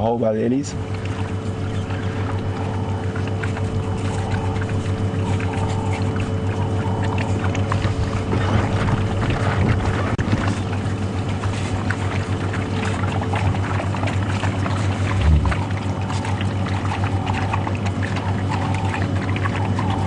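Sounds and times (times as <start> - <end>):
dogs lapping and splashing water: 0.0 - 20.0
low engine hum: 0.0 - 20.0.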